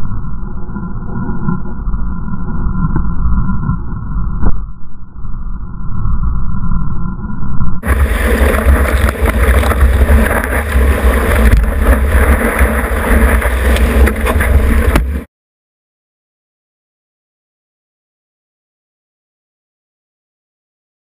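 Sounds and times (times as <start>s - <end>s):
wave rushing and spraying: 7.8s - 15.3s
wind buffeting microphone: 7.8s - 15.3s.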